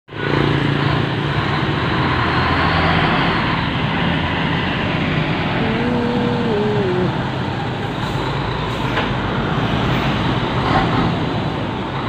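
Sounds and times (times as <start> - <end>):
tyres hissing on wet road: 0.1 - 6.4.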